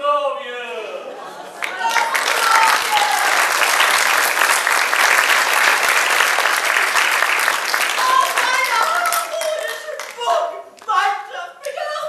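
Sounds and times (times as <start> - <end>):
audience applauding: 1.5 - 11.0.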